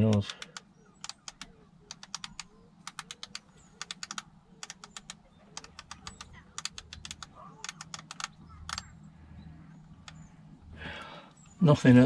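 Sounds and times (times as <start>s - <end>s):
small plastic clicks of radio controls: 0.0s - 8.9s, 9.8s - 10.4s.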